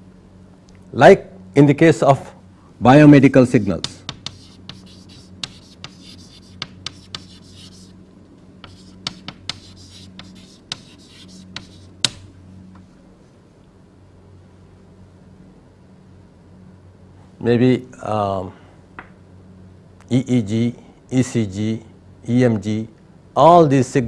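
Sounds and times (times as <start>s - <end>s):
low electrical hum: 0.0s - 24.0s
sharp taps: 3.8s - 6.0s
pen scratching on paper: 4.0s - 8.0s, 8.6s - 11.9s.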